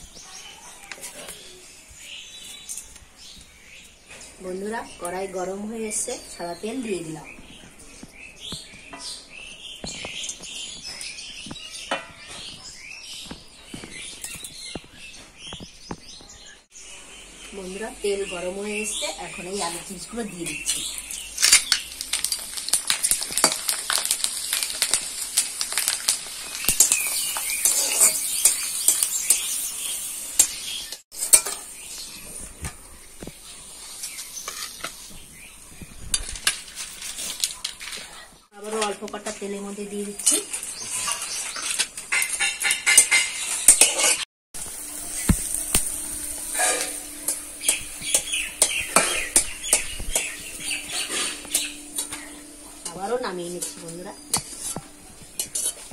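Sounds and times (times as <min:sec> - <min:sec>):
chips sizzling in hot oil: 0:17.6 - 0:37.6, 0:39.1 - 0:55.9
metal spatula scraping a wok: 0:26.8 - 0:32.8, 0:33.8 - 0:35.0, 0:40.8 - 0:55.9.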